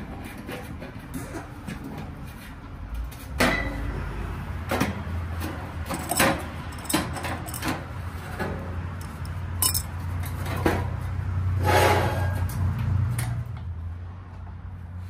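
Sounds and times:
metal tools clinking: 5.9 - 7.8, 9.0 - 10.0.

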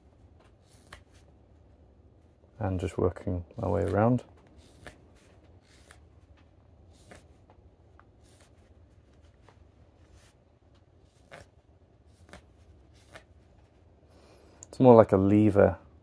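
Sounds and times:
carving knife scraping wood: 3.6 - 6.1.

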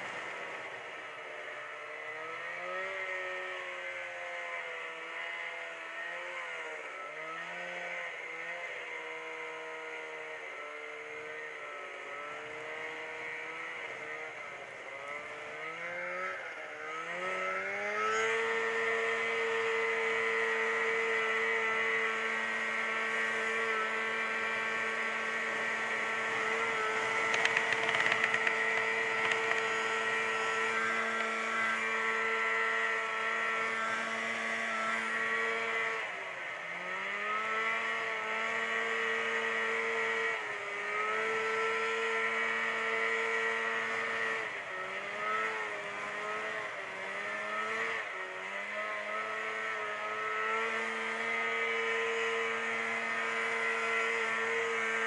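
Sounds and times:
snowmobile engine running: 11.8 - 36.0, 36.6 - 55.0.

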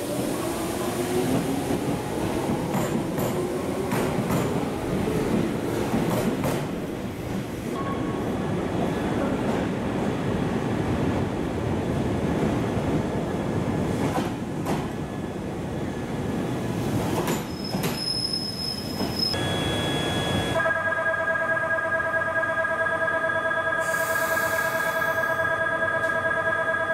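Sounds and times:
train rumbling: 0.0 - 19.4
wheel squeal: 17.3 - 20.5.

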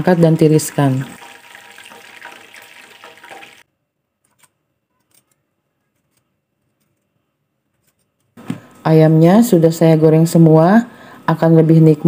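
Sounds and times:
hot oil sizzling: 0.0 - 3.7.

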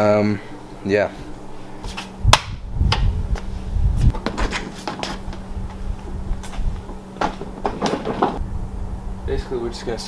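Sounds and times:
steady low hum: 0.0 - 10.0
footsteps on concrete: 1.8 - 8.4.

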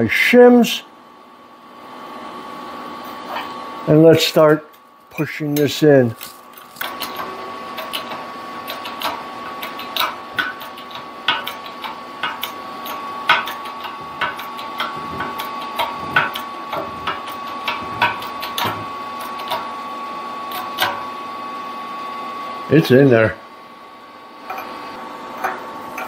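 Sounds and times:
steady high hum: 0.0 - 26.0.

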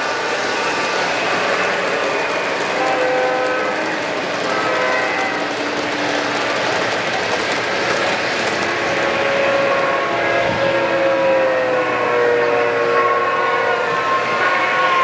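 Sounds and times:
model train wheels clattering: 0.0 - 9.8.

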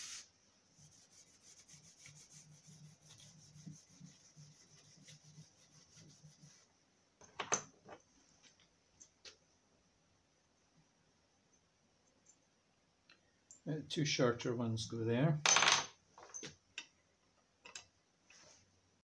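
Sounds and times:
paper towel rubbing metal: 0.0 - 6.7.

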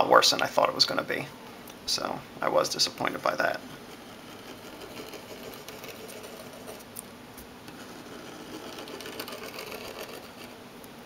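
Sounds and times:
pen writing on paper: 3.9 - 6.8, 7.7 - 10.6.

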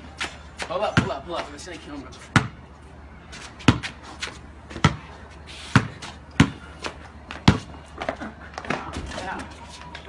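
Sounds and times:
basketball bouncing on concrete: 0.2 - 1.5, 2.3 - 2.6, 3.6 - 5.1, 5.7 - 9.4.

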